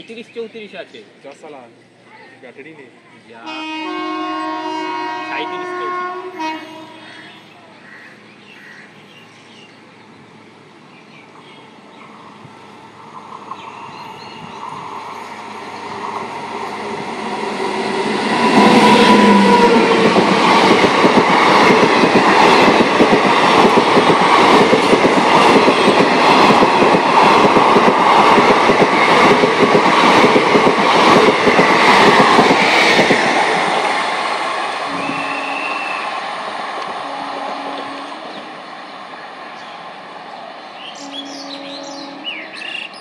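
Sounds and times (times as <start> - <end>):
electric train passing: 2.6 - 43.0
wheels clacking over rails: 14.8 - 34.8.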